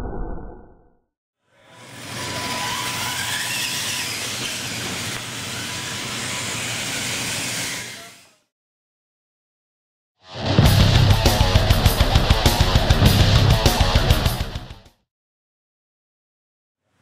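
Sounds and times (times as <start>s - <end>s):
toy trucks motors and tyres hiss: 1.5s - 8.5s.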